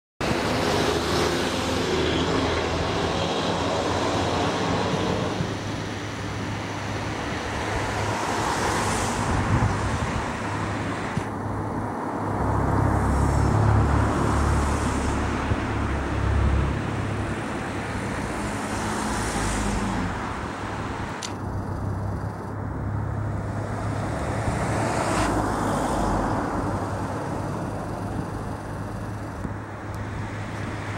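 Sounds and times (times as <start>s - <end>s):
traffic background hum: 0.2s - 30.9s
vehicles passing: 0.2s - 30.9s
heavy low engine rumble: 20.1s - 24.7s, 25.4s - 30.9s.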